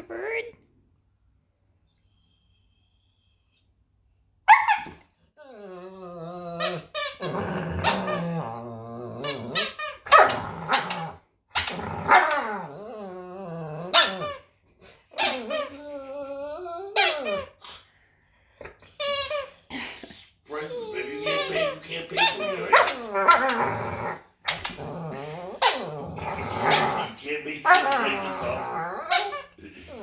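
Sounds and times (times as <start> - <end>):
dogs barking sharply: 4.5 - 5.0
dogs whining growls: 4.8 - 17.8, 20.6 - 30.0.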